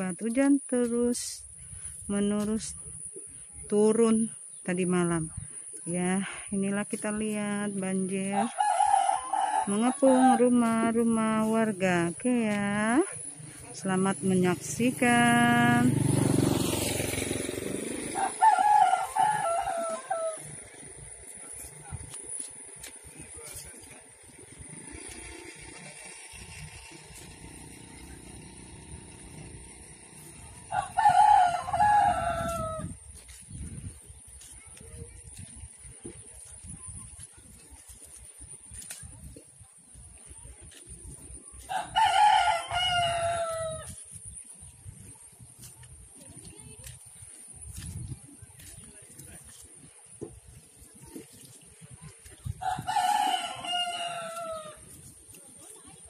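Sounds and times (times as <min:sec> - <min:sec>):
rooster crowing: 0:08.4 - 0:10.8, 0:18.1 - 0:20.6, 0:30.7 - 0:33.0, 0:41.7 - 0:44.0, 0:52.6 - 0:54.8
low steady rumble: 0:17.1 - 0:56.0.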